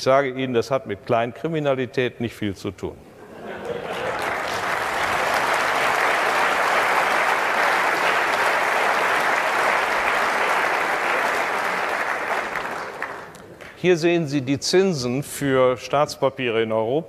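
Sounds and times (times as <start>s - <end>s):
audience applauding: 3.6s - 13.8s.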